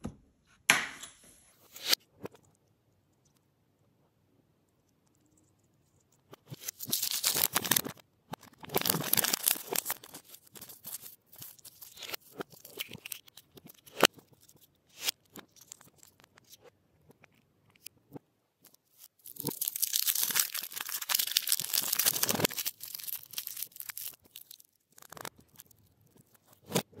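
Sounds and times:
foil wrapper crinkling and tearing: 0:06.4 - 0:16.6, 0:18.7 - 0:26.9.

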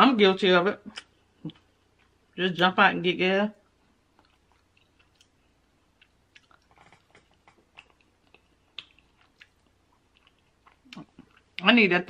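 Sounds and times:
faint chewing and lip smacks: 0:00.9 - 0:02.4, 0:03.6 - 0:11.6.

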